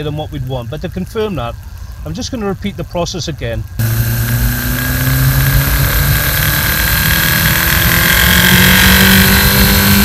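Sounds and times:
car engine revs climbing: 3.8 - 10.0.

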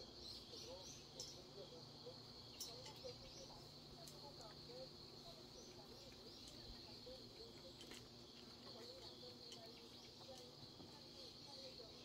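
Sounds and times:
insect chorus trilling: 0.0 - 12.0.

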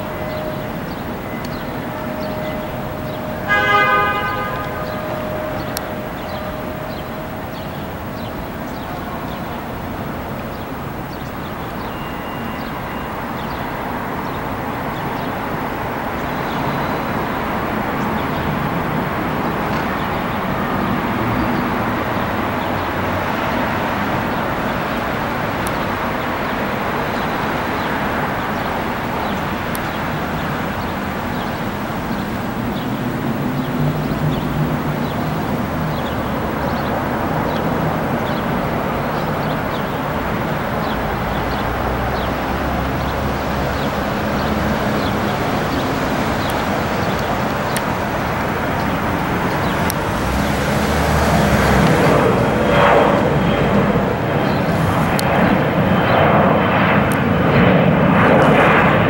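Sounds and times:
distant jet engines taxiing: 0.0 - 59.0
wind gusts on microphone: 13.9 - 59.0.

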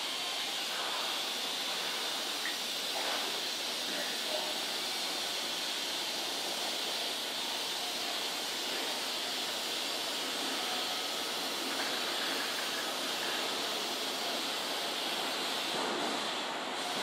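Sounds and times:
electric train hissing: 0.0 - 17.0.

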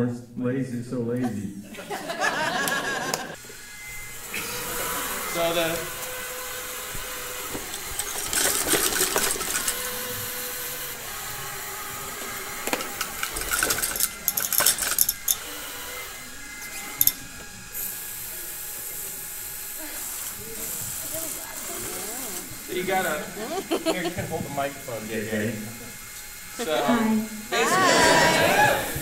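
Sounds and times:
robot motors and treads whirring: 3.4 - 23.8.

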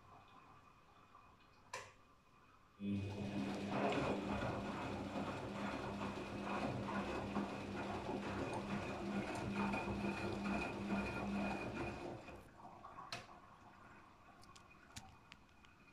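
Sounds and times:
washing machine motor hum: 2.8 - 14.4
water sloshing in drum: 3.1 - 15.4.

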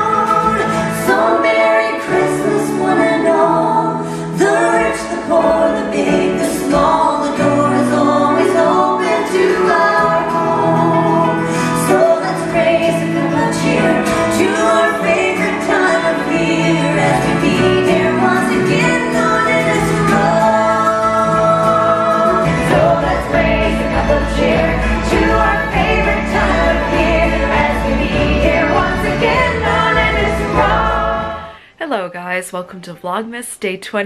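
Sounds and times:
banjo: 0.0 - 3.7, 4.3 - 31.6
women singing in harmony: 0.0 - 31.6
acoustic guitar: 0.0 - 34.0.

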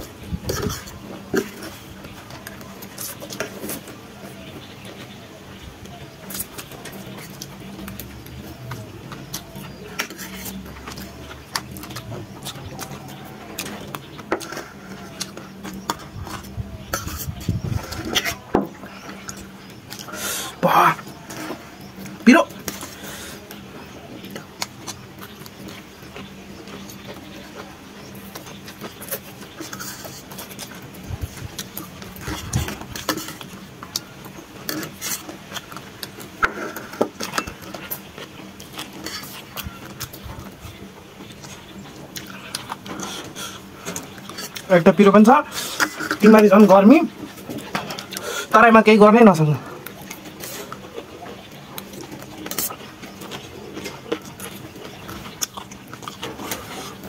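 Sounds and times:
noodles slurped and chewed: 0.0 - 48.6, 49.3 - 57.0
cutlery clinking on steel plates: 36.4 - 40.1.

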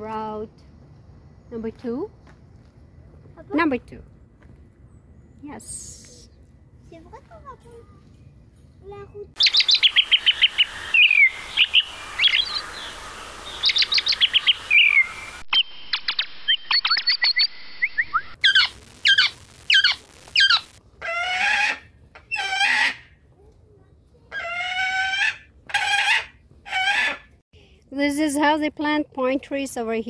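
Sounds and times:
songbirds chirping: 8.0 - 18.8.

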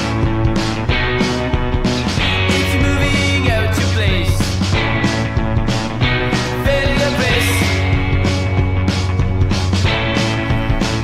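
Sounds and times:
rock music: 0.0 - 11.0.

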